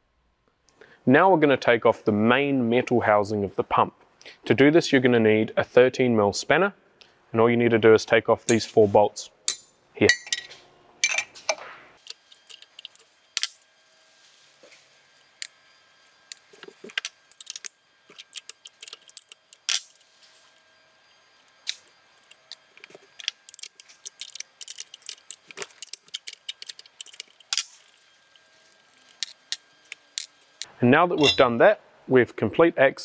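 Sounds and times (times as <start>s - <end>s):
metal parts knocking together: 9.5s - 13.6s, 16.6s - 19.9s, 23.2s - 28.0s
spanner clicking on bolts: 23.2s - 28.0s.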